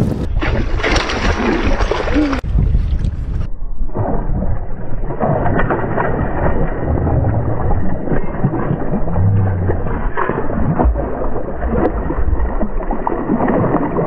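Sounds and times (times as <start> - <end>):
wind rumble on microphone: 0.0 - 14.0
fish splashing in water: 0.4 - 2.4, 5.0 - 14.0.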